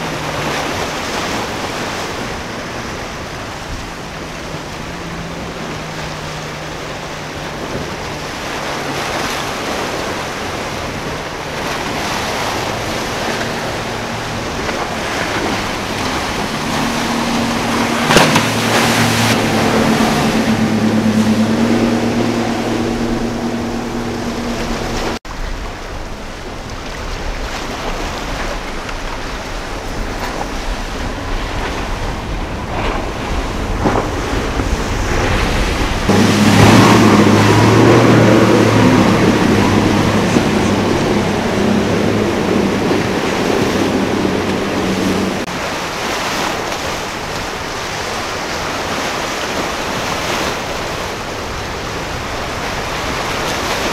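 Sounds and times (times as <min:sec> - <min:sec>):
motorboat engine droning: 0:00.0 - 0:53.9
surf waves: 0:00.0 - 0:53.9
wind on microphone: 0:00.0 - 0:53.9
sharp splash: 0:05.4 - 0:25.2, 0:33.0 - 0:53.9.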